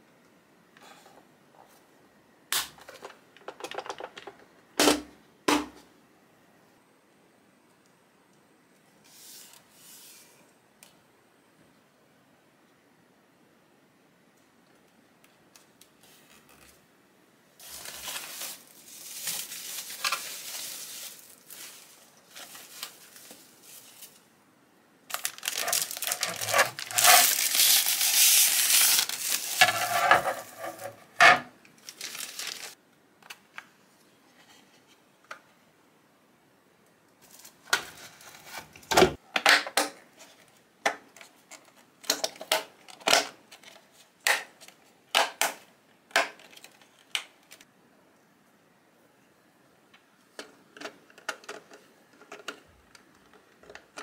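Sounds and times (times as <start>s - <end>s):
plastic bags crinkling: 17.6s - 24.3s, 25.1s - 31.2s, 31.8s - 32.8s.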